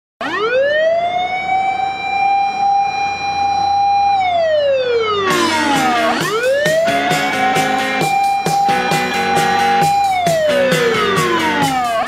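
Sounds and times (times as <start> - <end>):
fire engine siren wailing: 0.2 - 12.0
music with steady beat: 5.3 - 12.0.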